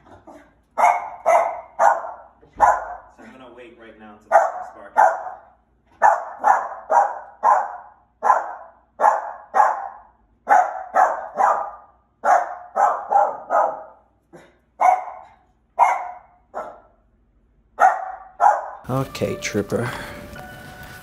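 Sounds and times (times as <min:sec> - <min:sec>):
small dog barking: 0:00.8 - 0:03.1, 0:04.3 - 0:17.0, 0:17.8 - 0:18.9.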